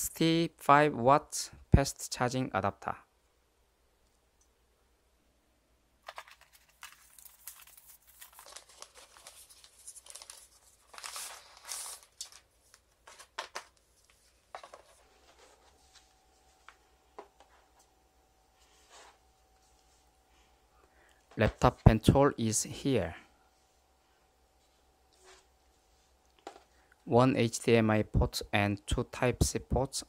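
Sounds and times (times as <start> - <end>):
paper packaging rustling: 6.0 - 17.9.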